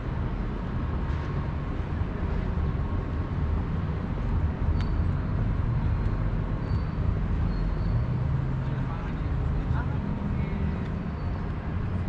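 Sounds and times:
road traffic rumble: 0.0s - 12.0s
faint high chirp: 5.9s - 8.1s.

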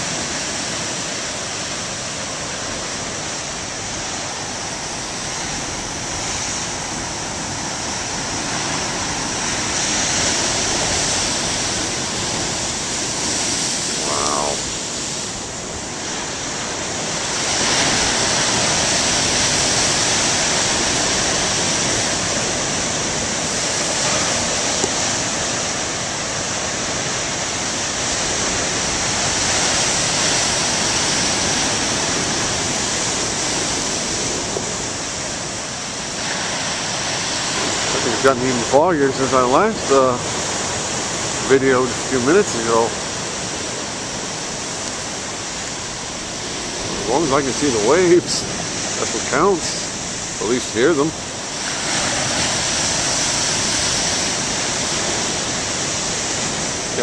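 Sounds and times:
heavy surf breaking: 0.0s - 57.0s.

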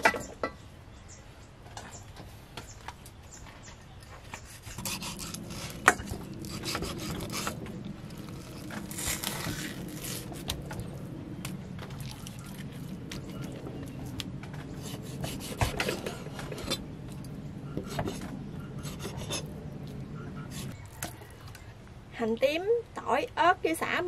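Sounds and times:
knife scraping on wood: 4.4s - 10.8s, 14.7s - 16.8s, 17.8s - 19.5s
knife slicing fish: 4.5s - 7.6s.

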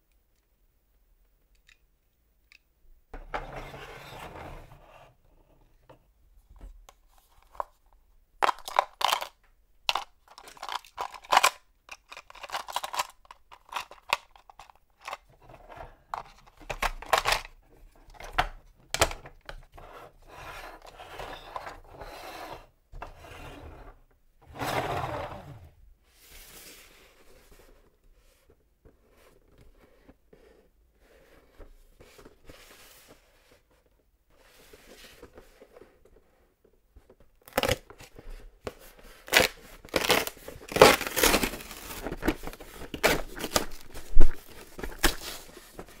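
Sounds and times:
toy truck scraping across table: 3.3s - 5.2s, 19.8s - 25.8s
plastic toy clicks and knocks: 8.4s - 15.2s.

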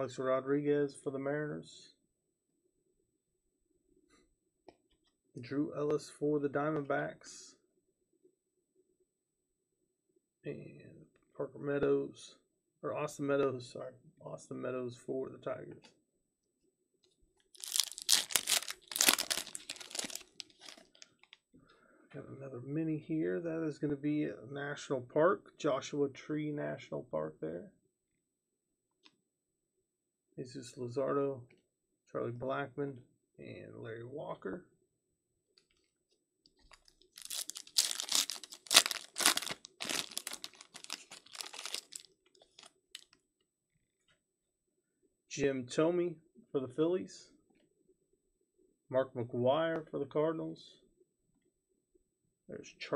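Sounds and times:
foil wrapper crinkling: 17.6s - 21.3s, 36.6s - 43.2s.

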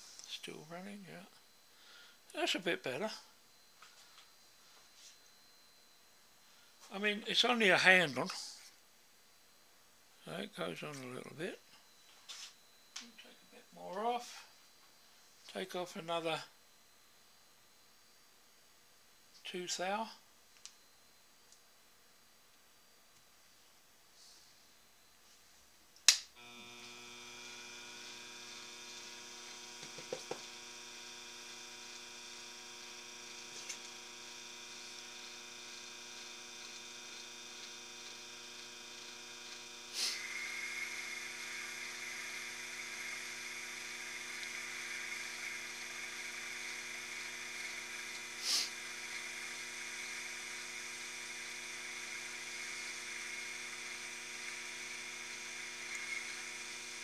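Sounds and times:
switch click: 26.1s - 26.3s
lathe motor humming and whining: 26.4s - 57.0s
louder higher whine: 26.4s - 57.0s.

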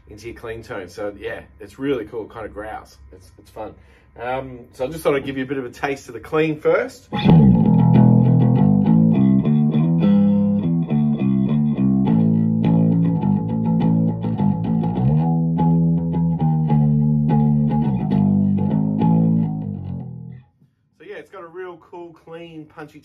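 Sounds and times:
electric bass guitar plucked: 7.1s - 20.5s.

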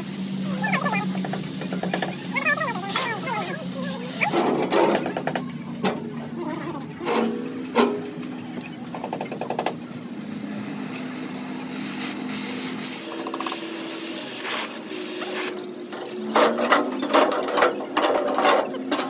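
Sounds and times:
gas torch flame hissing: 0.0s - 4.5s, 10.3s - 15.6s.

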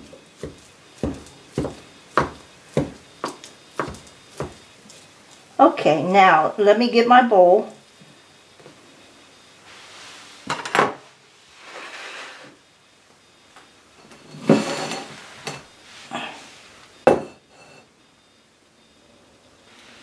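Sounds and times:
cutlery set down on counter: 10.5s - 11.0s, 17.1s - 17.8s
glass bowl clinking on countertop: 17.1s - 17.8s.

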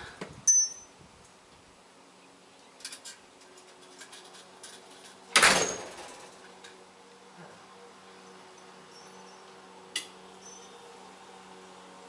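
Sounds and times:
sharp metallic door click: 5.3s - 6.1s
door shutting with thud: 5.4s - 6.0s.

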